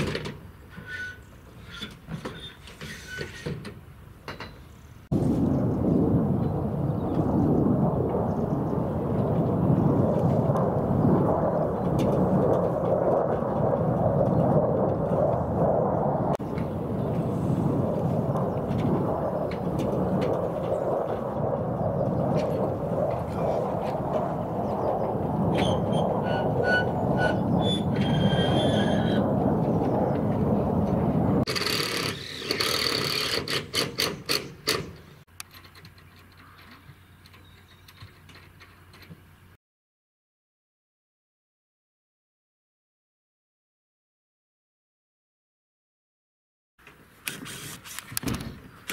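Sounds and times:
jet aircraft flying overhead: 5.1s - 33.5s.

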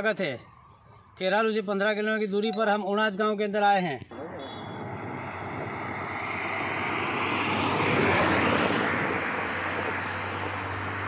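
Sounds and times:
vehicle passing on road: 4.1s - 11.0s.

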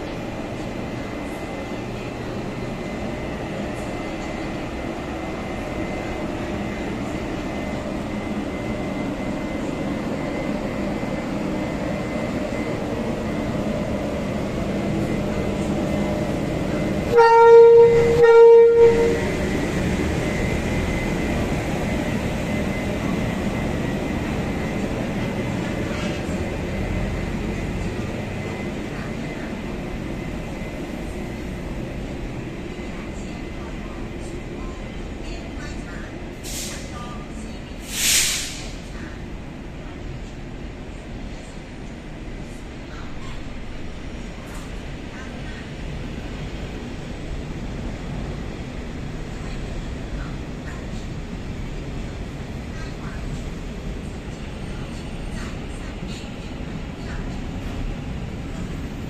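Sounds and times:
train rumbling: 0.0s - 59.0s
locomotive horn blasts: 17.1s - 19.4s.

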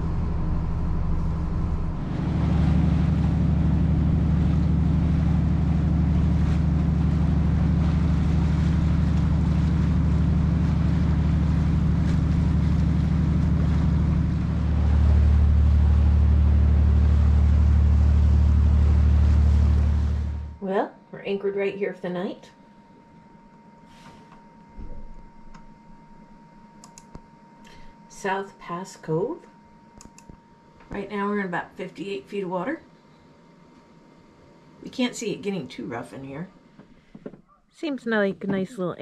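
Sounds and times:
boat diesel engine humming: 0.0s - 21.6s.

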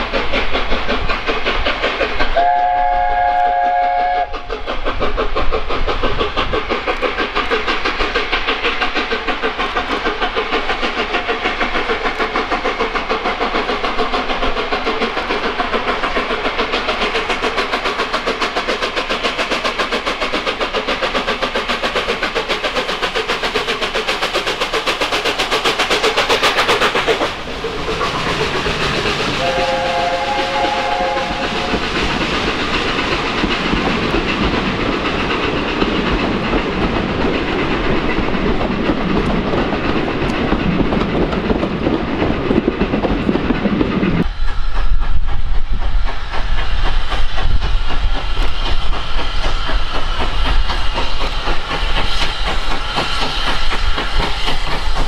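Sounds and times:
steam locomotive exhaust beats: 0.0s - 55.0s
coaches rumbling and clattering: 31.8s - 44.3s.

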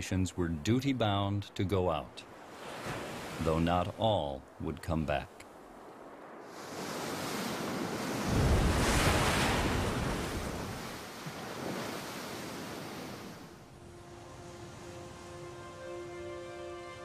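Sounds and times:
ocean wave crashing: 5.7s - 16.2s
soft music: 13.7s - 17.0s.

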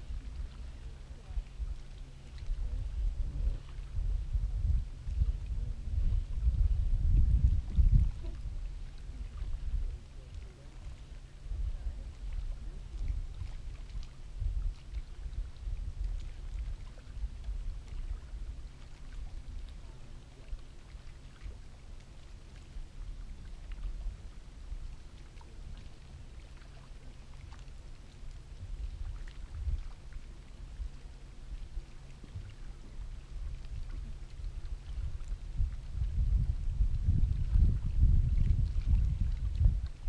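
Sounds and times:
low uneven rumble: 0.0s - 40.0s.

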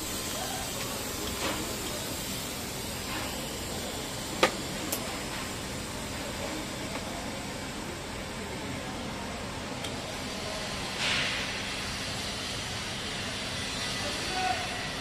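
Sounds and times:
gas flow hiss: 0.0s - 15.0s
soft welding arc hiss: 0.0s - 15.0s.

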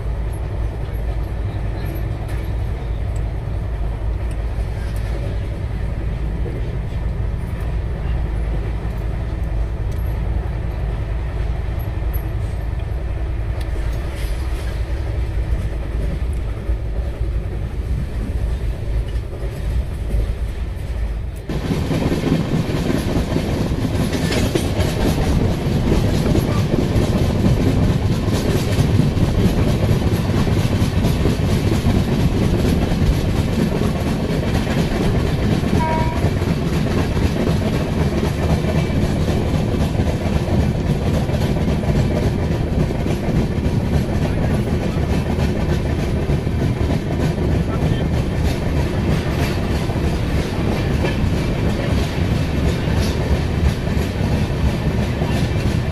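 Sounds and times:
train coaches rumbling: 0.0s - 55.9s
wheels clacking over rail joints: 13.6s - 55.9s.

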